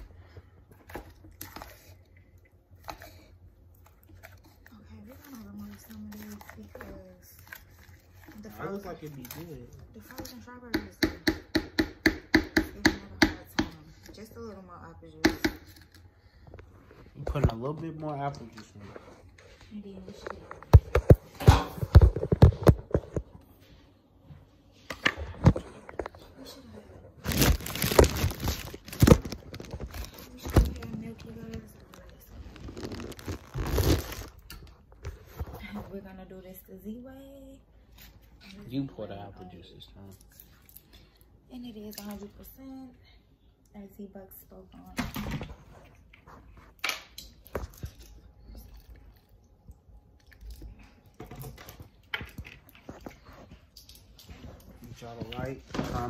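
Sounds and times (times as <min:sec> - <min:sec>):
rustling and rubbing: 0:27.2 - 0:34.4.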